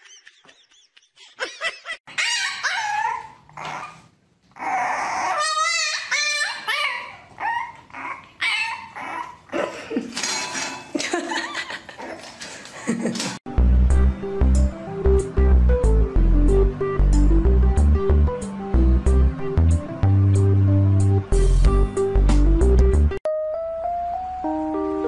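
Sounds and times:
dog whining and yipping: 2.1 - 9.5.

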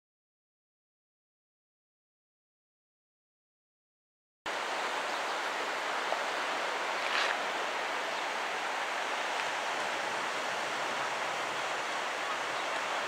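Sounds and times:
surf washing onto beach: 4.5 - 13.0.

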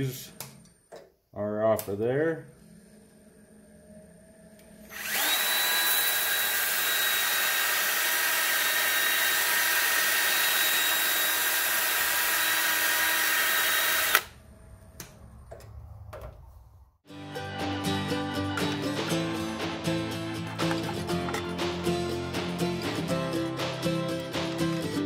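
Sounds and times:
power drill sanding whine: 4.8 - 14.3.

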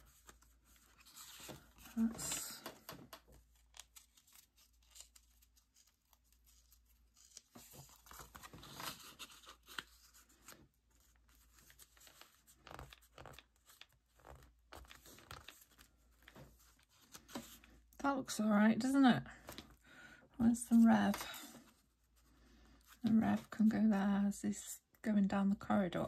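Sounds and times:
paper rustling and tapping: 0.1 - 5.2, 11.4 - 17.7.

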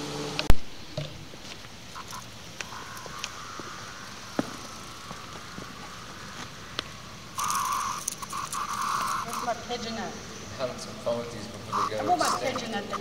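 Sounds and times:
distant cicada chorus hum: 1.6 - 13.0
cicada loud harsh buzz: 1.9 - 10.8, 11.6 - 13.0
sharp clicks: 6.8 - 9.5.

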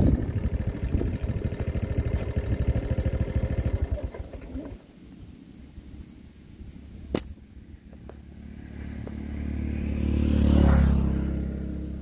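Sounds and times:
slingshot bands snapping: 7.1 - 7.4
passing vehicle engine: 7.7 - 12.0.

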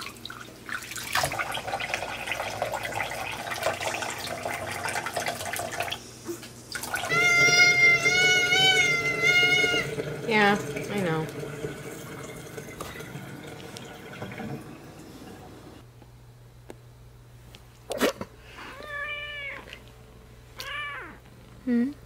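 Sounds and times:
water splashing in metal sink: 0.0 - 6.0, 6.7 - 15.4
cat yowling: 7.0 - 9.9, 18.6 - 19.8, 20.6 - 21.2.

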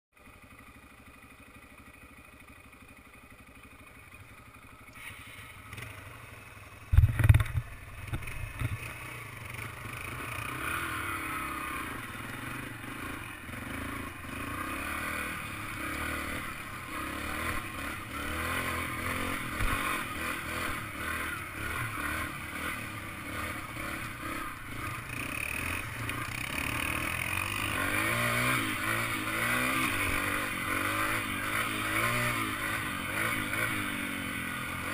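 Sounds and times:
trail bike engine: 0.2 - 34.9
gravel clatter: 6.9 - 9.0.

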